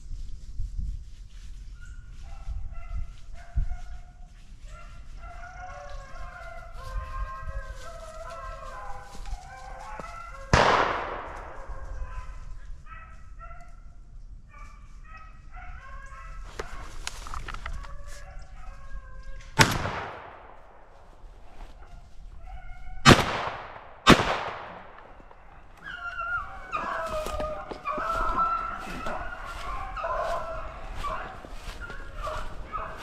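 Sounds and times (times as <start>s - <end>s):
hounds baying: 1.8s - 13.9s, 14.5s - 19.4s, 21.4s - 23.1s, 24.7s - 33.0s
gunshot cracking: 10.5s - 11.7s, 19.6s - 21.0s, 23.1s - 25.3s.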